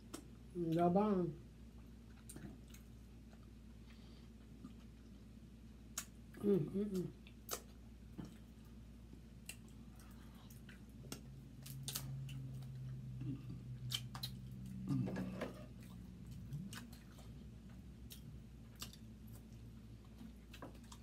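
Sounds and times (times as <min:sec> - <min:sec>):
person humming: 0:06.4 - 0:07.2
wet chewing: 0:09.4 - 0:21.0.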